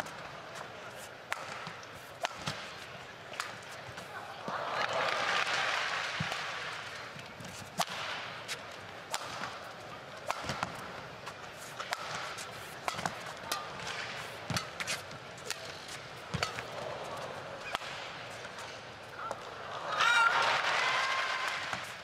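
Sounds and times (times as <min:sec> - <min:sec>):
crowd noise: 0:00.0 - 0:22.0
rackets striking shuttlecock: 0:01.3 - 0:04.0, 0:07.4 - 0:16.8, 0:17.6 - 0:18.7.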